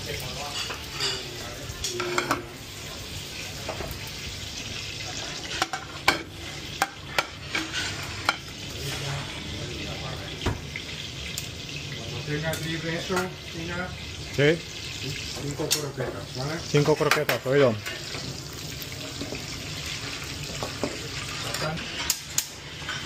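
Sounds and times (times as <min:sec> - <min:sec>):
food cooking hiss: 0:00.0 - 0:23.0
metal utensils and plates clinking: 0:00.1 - 0:02.6, 0:05.0 - 0:09.4, 0:15.3 - 0:23.0.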